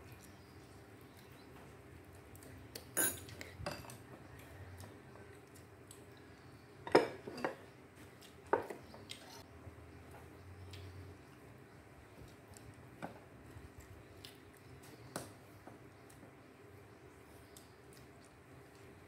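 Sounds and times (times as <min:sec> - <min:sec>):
utensils clinking on ceramic bowls: 0:03.0 - 0:04.0.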